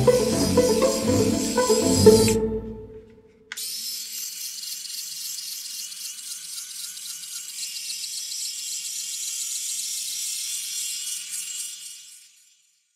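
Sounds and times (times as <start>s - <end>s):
background music: 0.0s - 3.2s.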